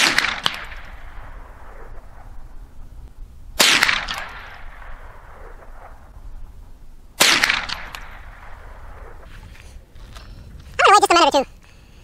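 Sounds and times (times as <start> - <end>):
rifle shots with echo: 0.0 - 2.6, 3.6 - 6.2, 7.2 - 9.3.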